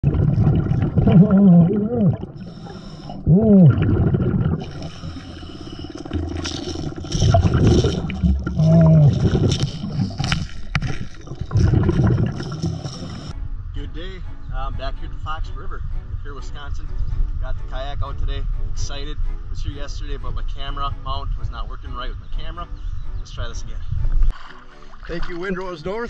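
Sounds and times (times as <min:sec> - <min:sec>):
muffled vocal tones underwater: 0:00.0 - 0:02.4, 0:03.2 - 0:04.8, 0:06.9 - 0:10.3
regulator breath bubbling: 0:00.0 - 0:13.4.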